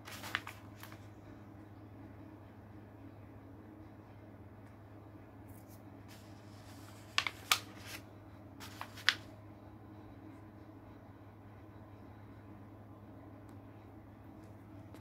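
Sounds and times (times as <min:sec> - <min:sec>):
book page turning: 0:00.0 - 0:01.1, 0:05.5 - 0:08.0, 0:08.6 - 0:09.3.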